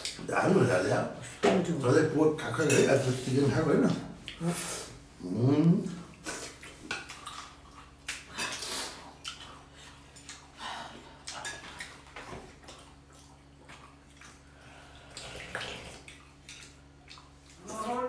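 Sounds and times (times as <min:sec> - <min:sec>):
people slurping noodle soup: 0:08.2 - 0:09.2, 0:14.4 - 0:16.1.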